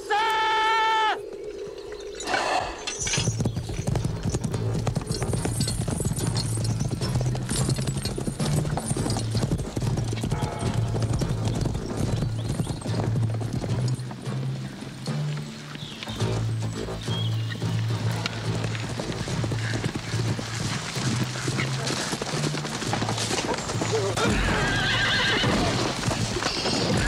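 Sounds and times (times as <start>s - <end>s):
horse hooves clattering: 1.0s - 27.0s.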